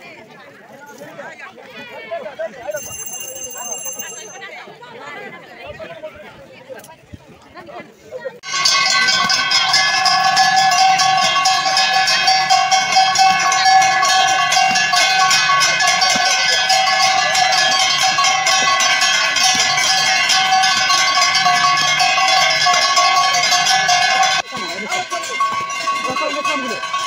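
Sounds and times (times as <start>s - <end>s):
metal bells clanging rapidly: 2.7s - 4.5s, 8.4s - 27.0s.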